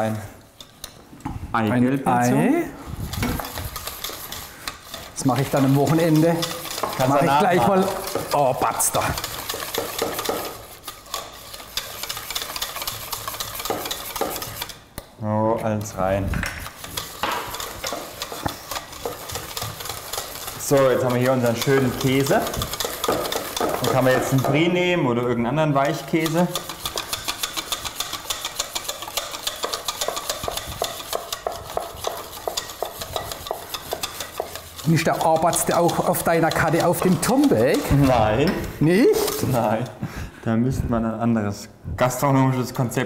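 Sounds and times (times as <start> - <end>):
utensil scraping a metal bowl: 3.0 - 14.9, 15.6 - 40.0.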